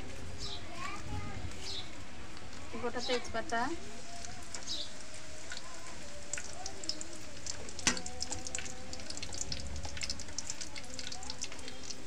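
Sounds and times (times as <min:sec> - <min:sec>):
spices sizzling in hot oil: 0:01.5 - 0:12.0.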